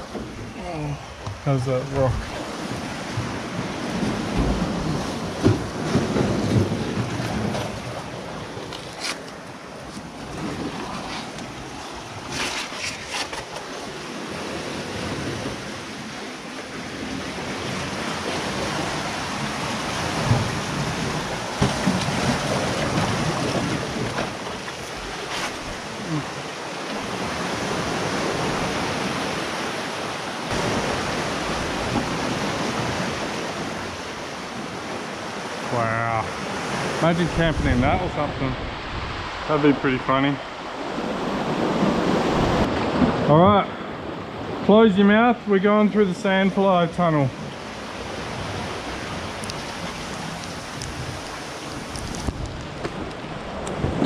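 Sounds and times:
ocean surf among boulders: 0:00.0 - 0:54.0
knocks and scrapes against rock: 0:08.6 - 0:10.1, 0:12.3 - 0:13.8.

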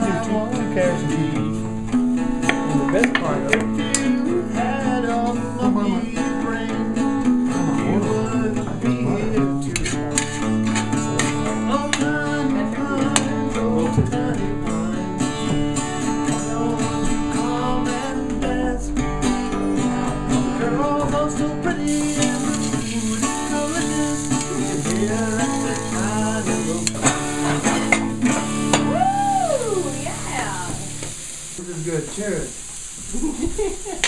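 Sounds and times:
acoustic guitar music: 0:00.0 - 0:34.0
vegetables sizzling in a pan: 0:21.9 - 0:34.0.

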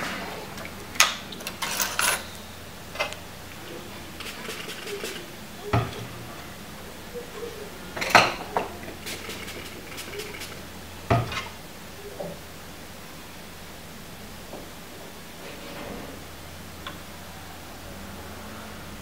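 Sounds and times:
faint steady hum: 0:00.0 - 0:19.0
metal tools clinking on workbench: 0:01.4 - 0:02.4.

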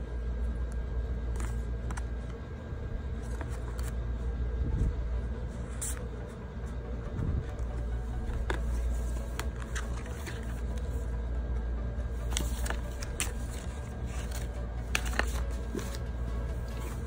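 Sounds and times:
steady low hum: 0:00.0 - 0:17.0
packaging rustling and tapping: 0:12.2 - 0:17.0.

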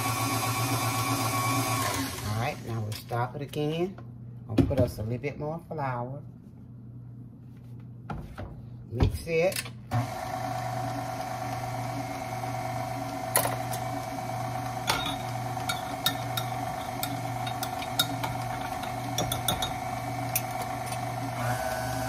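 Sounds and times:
stand mixer motor humming: 0:00.0 - 0:02.6, 0:10.0 - 0:22.0.

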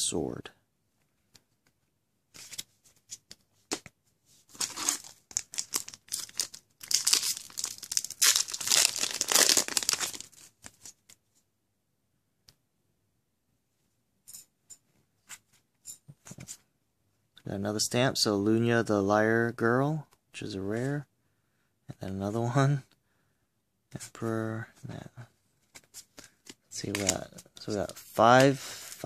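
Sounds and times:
wrapper tearing and crinkling: 0:04.6 - 0:11.0.

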